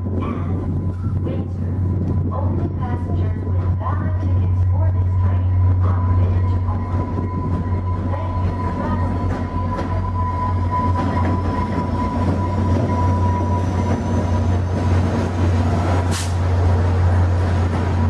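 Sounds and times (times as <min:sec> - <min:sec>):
short hiss: 0:16.1 - 0:16.4.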